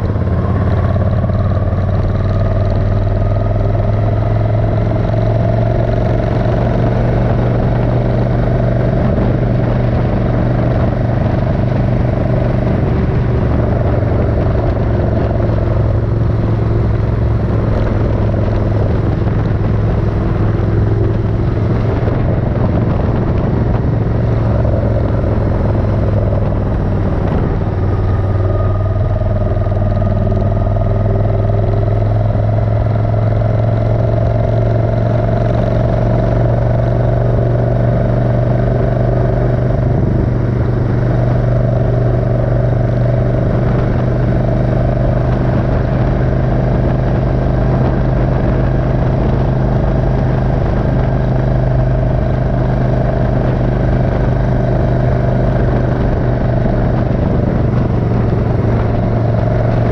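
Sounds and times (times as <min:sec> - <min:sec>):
motorcycle engine running steadily: 0:00.0 - 0:59.9.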